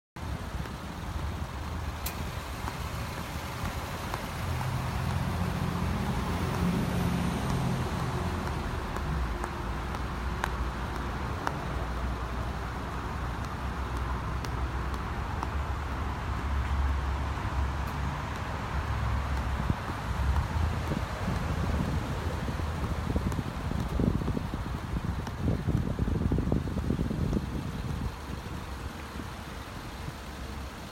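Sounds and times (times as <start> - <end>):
traffic rumble: 0.2 - 30.9
faint clicks: 0.5 - 4.3.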